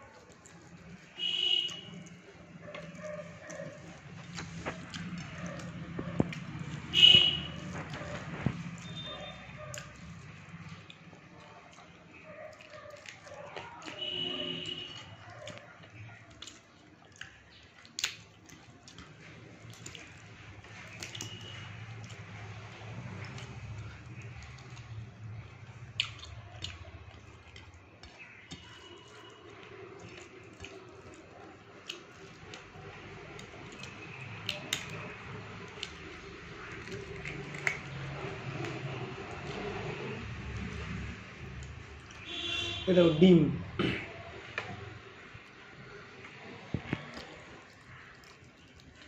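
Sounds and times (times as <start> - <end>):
person chewing: 0.0 - 42.3, 46.2 - 49.0
wet squishing of rice: 0.0 - 42.9, 44.2 - 49.0
mouth and finger clicks: 25.8 - 27.7, 33.4 - 35.0.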